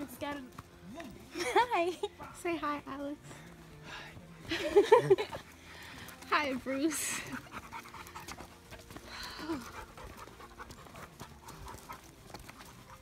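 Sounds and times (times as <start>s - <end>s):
footsteps crunching on stony trail: 0.0s - 13.0s
person panting: 3.2s - 12.1s.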